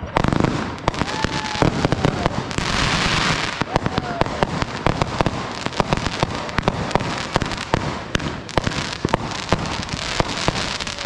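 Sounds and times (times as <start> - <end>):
fireworks bangs and pops: 0.0 - 11.0.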